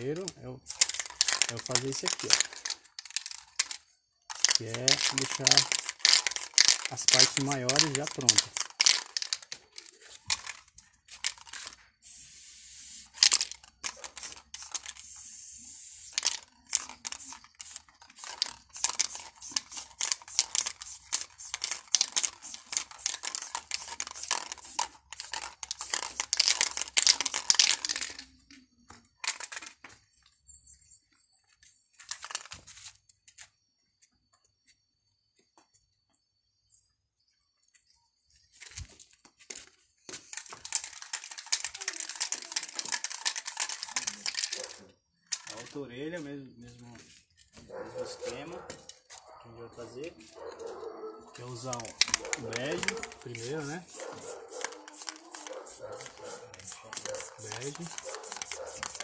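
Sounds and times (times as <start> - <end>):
spray paint can hissing: 0.6 - 28.2, 40.3 - 44.8, 51.6 - 59.0.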